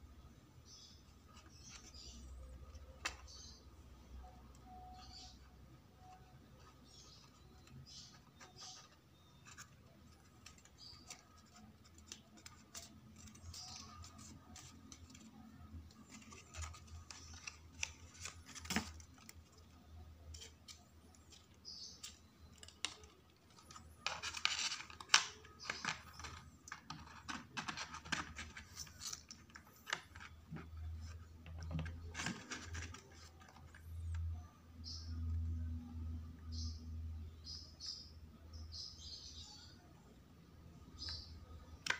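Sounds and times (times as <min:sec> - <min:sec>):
paper rustling: 0:07.0 - 0:34.2.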